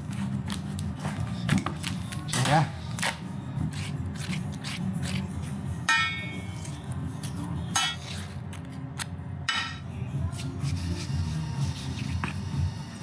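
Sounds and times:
melon baller clinking on metal pan: 5.9s - 6.5s.

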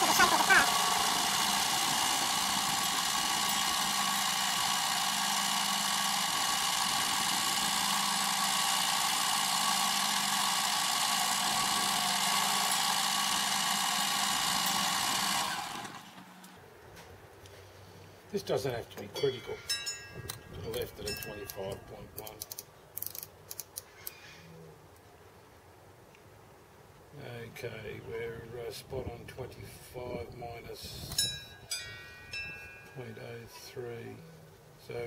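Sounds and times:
metal lathe cutting whine: 0.0s - 16.2s.

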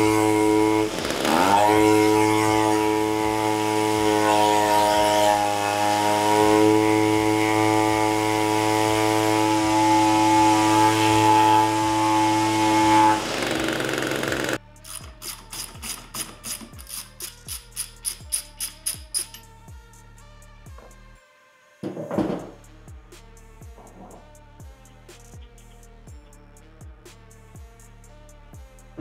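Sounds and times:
string trimmer engine running: 0.0s - 19.2s.

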